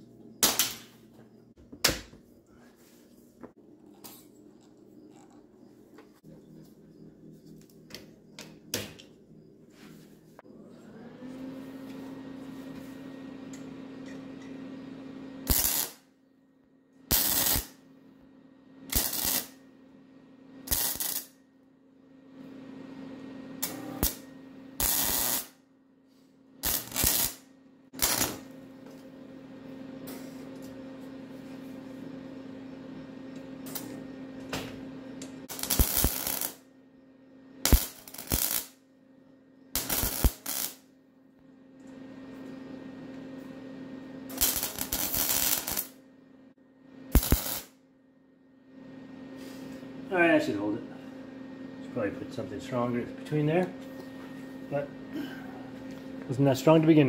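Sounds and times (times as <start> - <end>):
arc welder crackling: 0.4 - 1.0, 15.4 - 16.1, 17.0 - 17.9, 18.8 - 19.7, 20.5 - 21.4, 23.5 - 25.6, 26.5 - 29.1, 33.3 - 36.7, 37.6 - 38.9, 39.7 - 40.9, 41.8 - 46.2, 47.1 - 47.8.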